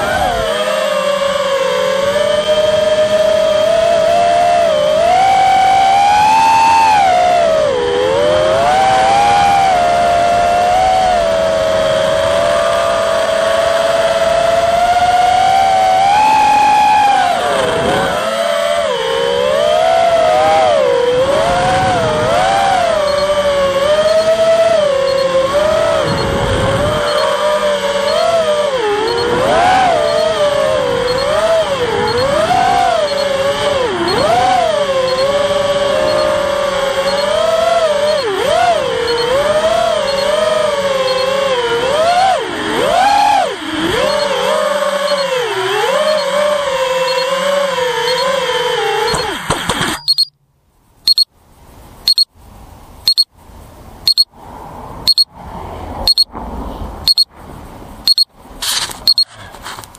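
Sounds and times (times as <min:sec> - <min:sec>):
quadcopter motors whining: 0:00.0 - 0:50.3
electronic double beep: 0:26.0 - 0:26.4, 0:27.0 - 0:27.4, 0:36.0 - 0:36.4, 0:49.1 - 0:50.4, 0:51.1 - 0:51.3, 0:52.1 - 0:52.3, 0:53.1 - 0:53.3, 0:54.1 - 0:54.3, 0:55.1 - 0:55.3, 0:56.1 - 0:56.3, 0:57.1 - 0:57.3, 0:58.1 - 0:58.3, 0:59.1 - 0:59.3.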